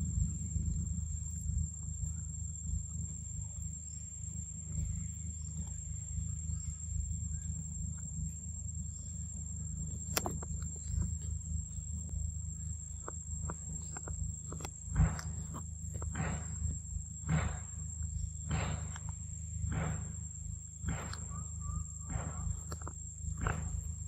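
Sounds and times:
high-pitched whine: 0.0s - 24.0s
low rumble: 0.0s - 24.0s.

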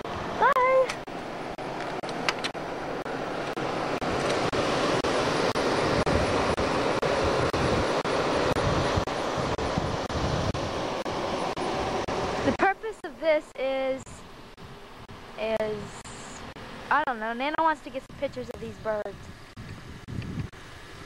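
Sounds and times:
wind on microphone: 5.9s - 10.9s, 18.1s - 20.6s.

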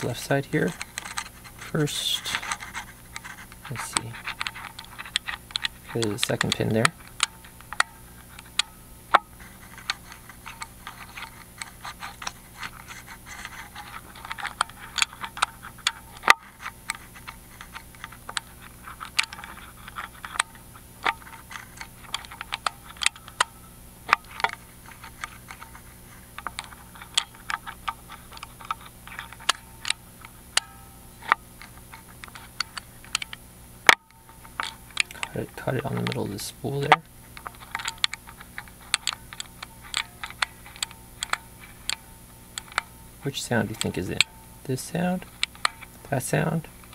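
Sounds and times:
low hum: 0.0s - 46.9s
lock pick clicking pins: 30.6s - 44.4s.

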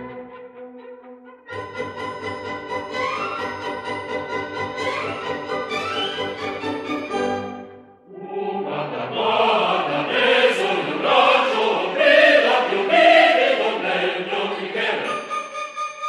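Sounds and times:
choir singing: 8.0s - 15.6s.

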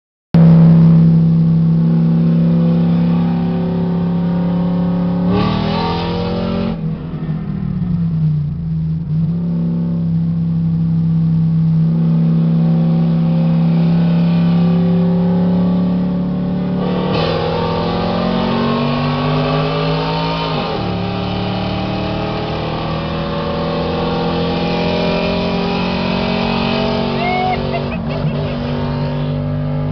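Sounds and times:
truck engines revving: 15.7s - 29.9s.

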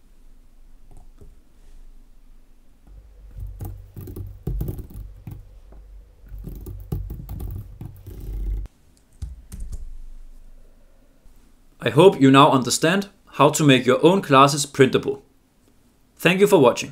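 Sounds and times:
keyboard typing: 6.3s - 9.9s.

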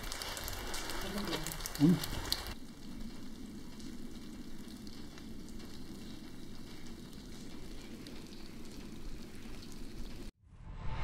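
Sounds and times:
low outdoor rushing: 10.4s - 11.0s.

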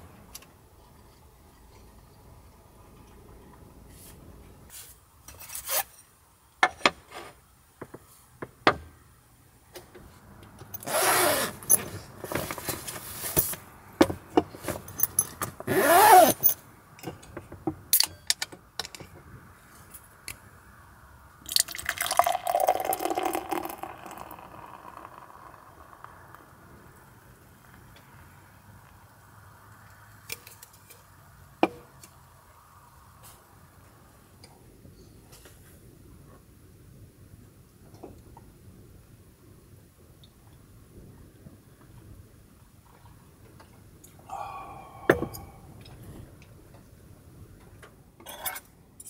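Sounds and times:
beer pouring and fizzing: 21.4s - 26.6s
beer can opening hiss: 21.5s - 26.5s.

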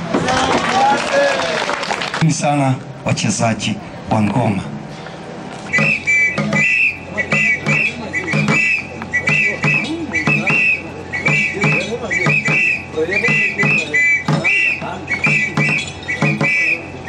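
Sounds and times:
shrill whistle blasts: 5.7s - 17.0s
steady drum beat: 5.7s - 17.0s.

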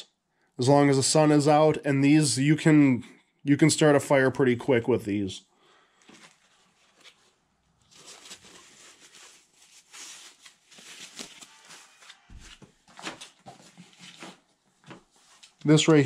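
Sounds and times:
plastic bags rustling and crinkling: 6.0s - 16.0s.

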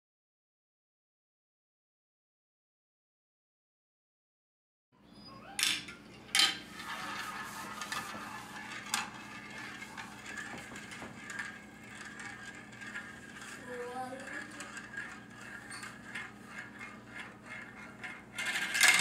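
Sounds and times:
marble rolling in plastic spiral: 5.6s - 19.0s
marble clicking in plastic chute: 6.4s - 19.0s.

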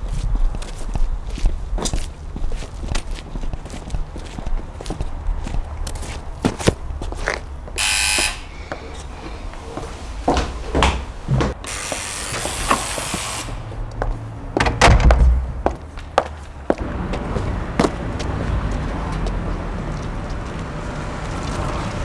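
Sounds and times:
electric buzzer: 7.8s - 8.8s, 11.6s - 13.7s
door clicks and knocks: 14.6s - 15.4s.

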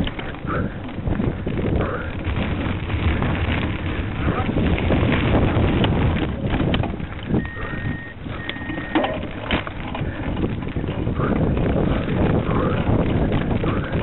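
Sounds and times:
bike rattling over bumps: 0.0s - 14.0s
tyres crunching on gravel: 0.0s - 14.0s
wind buffeting microphone: 0.0s - 14.0s
short high beeps: 7.4s - 9.1s.

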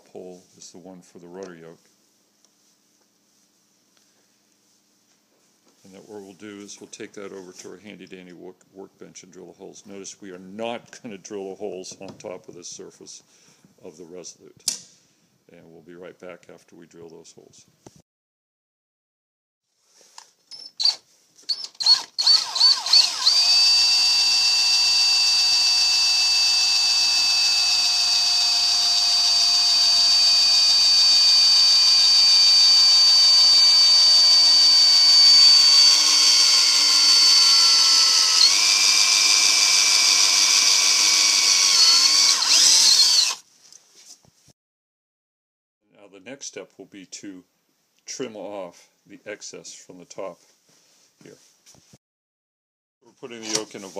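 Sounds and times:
power drill whining: 20.5s - 43.4s.

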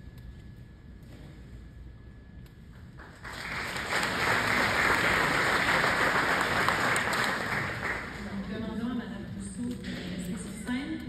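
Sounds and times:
crowd clapping: 3.0s - 8.5s.

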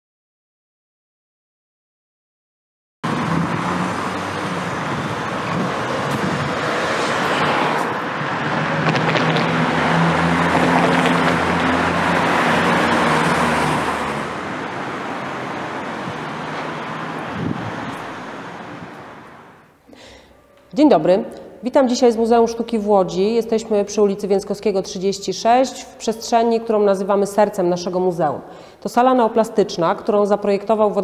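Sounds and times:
cars running past: 3.0s - 19.8s
vehicle engine hum: 3.0s - 19.8s.

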